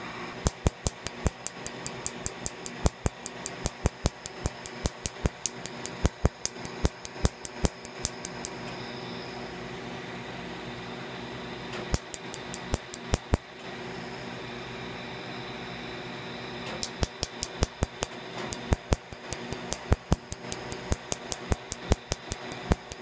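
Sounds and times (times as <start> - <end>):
laser firing snapping pulses: 0.4 - 8.6, 11.9 - 13.5, 16.8 - 23.0.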